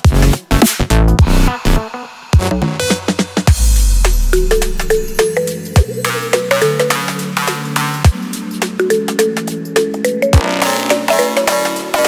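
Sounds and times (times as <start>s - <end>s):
electronic music with beat: 0.0s - 12.0s
deep bass note sliding down: 3.5s - 5.2s.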